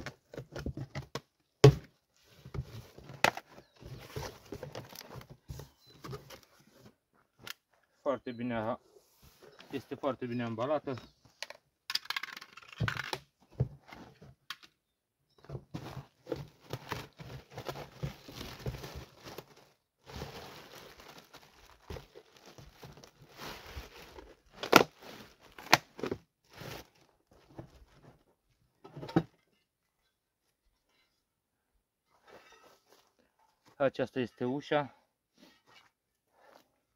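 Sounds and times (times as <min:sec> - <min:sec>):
cardboard packaging rustling: 0:02.5 - 0:06.8, 0:15.8 - 0:28.0
plastic wrapping crinkling and tearing: 0:16.6 - 0:25.8.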